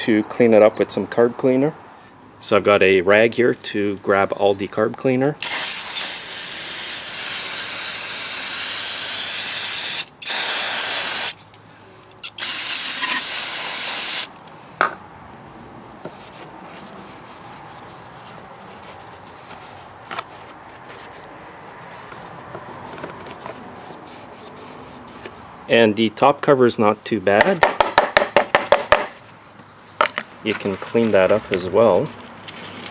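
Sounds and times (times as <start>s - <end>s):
aerosol can spraying: 5.4s - 11.4s, 12.2s - 14.3s
rag wiping plastic: 16.0s - 21.3s.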